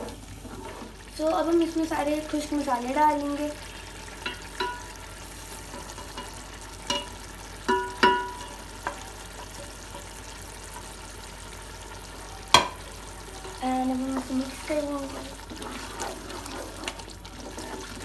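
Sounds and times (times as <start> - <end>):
masala sizzling in oil: 0.0 - 18.0
spoon clinking against pot: 4.2 - 4.9, 5.9 - 10.1.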